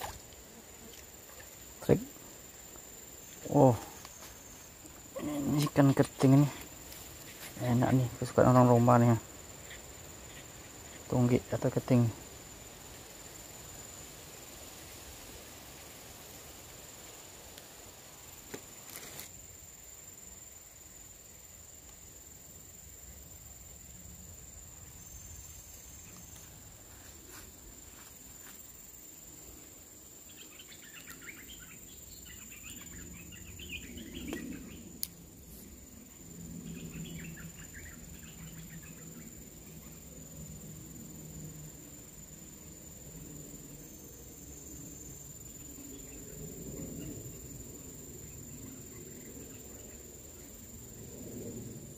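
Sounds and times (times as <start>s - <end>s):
insects droning: 0.0s - 51.9s
bird chirps: 30.3s - 35.0s.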